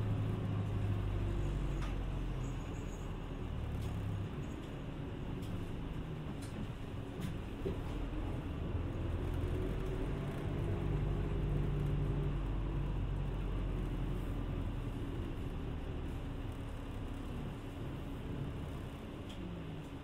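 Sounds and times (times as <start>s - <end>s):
bus engine hum: 0.0s - 20.0s
road noise: 0.0s - 20.0s.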